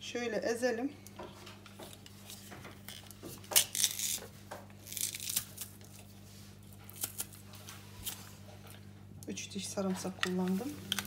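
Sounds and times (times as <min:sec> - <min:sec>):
garlic press crunching cloves: 0:02.8 - 0:04.2, 0:04.8 - 0:05.8.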